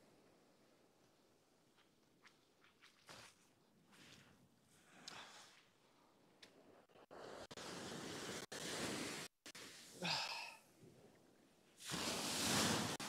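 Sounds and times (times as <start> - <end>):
wind: 0.0 - 13.0
surf: 7.0 - 10.3, 11.8 - 13.0
breathy sigh: 10.0 - 10.6.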